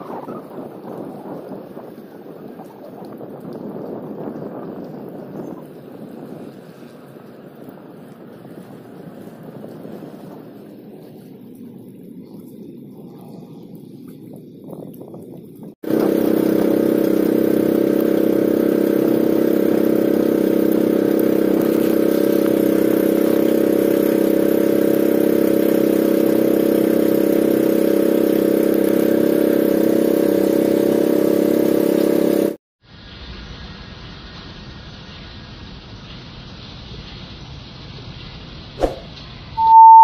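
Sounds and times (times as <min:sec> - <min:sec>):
boat engine running: 0:00.0 - 0:32.6, 0:39.6 - 0:40.0.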